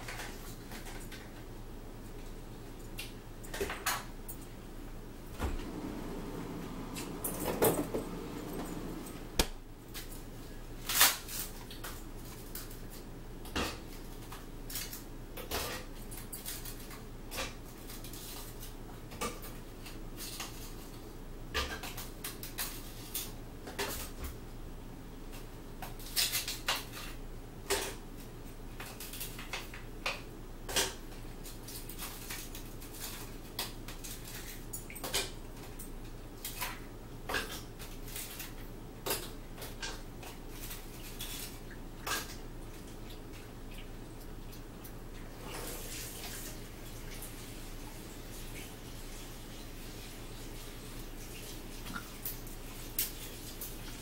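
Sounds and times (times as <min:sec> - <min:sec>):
steady low hum: 0:05.1 - 0:09.8
plates clicking and knocking: 0:05.5 - 0:09.5.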